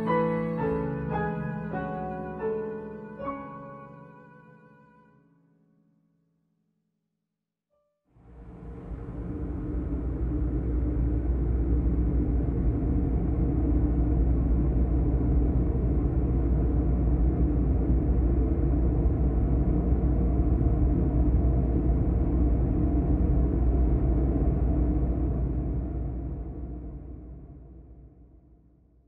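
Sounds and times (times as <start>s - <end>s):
deep rumbling drone: 8.2s - 28.8s.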